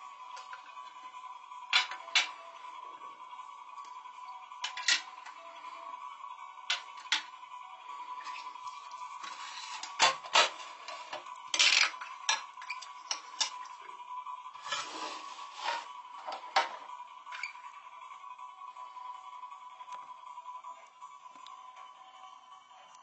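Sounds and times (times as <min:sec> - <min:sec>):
metal tin lid clicks and clatters: 0:11.5 - 0:12.4.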